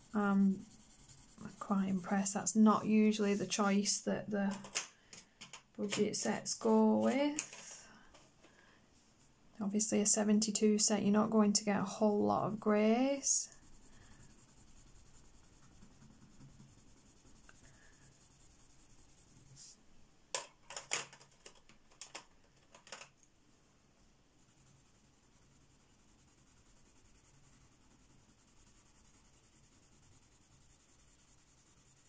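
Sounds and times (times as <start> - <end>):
pencil scratching on paper: 0.0 - 3.6, 12.5 - 19.8, 24.4 - 32.0
pencils clicking and tapping: 4.5 - 6.2, 7.0 - 8.2, 20.3 - 23.2.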